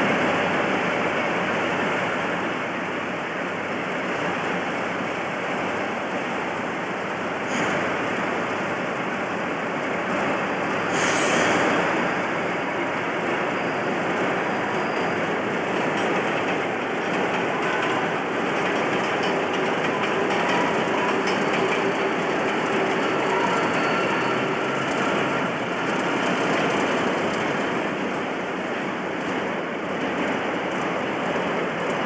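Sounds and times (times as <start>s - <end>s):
diesel locomotive engine running: 0.0s - 32.0s
loud hiss: 10.9s - 12.1s.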